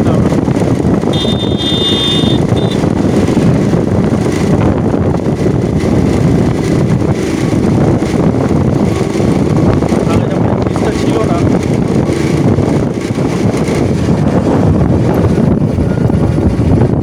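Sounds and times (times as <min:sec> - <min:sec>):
motorcycle engine: 0:00.0 - 0:17.0
road noise: 0:00.0 - 0:17.0
wind buffeting microphone: 0:00.0 - 0:17.0
high-pitched tone: 0:01.1 - 0:02.8, 0:08.8 - 0:09.7.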